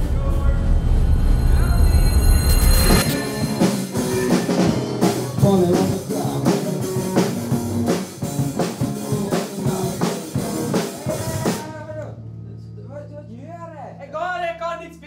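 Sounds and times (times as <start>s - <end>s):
drum kit beat: 2.8s - 12.0s
electric guitar: 2.9s - 12.3s
person singing: 3.2s - 7.8s, 8.4s - 12.0s.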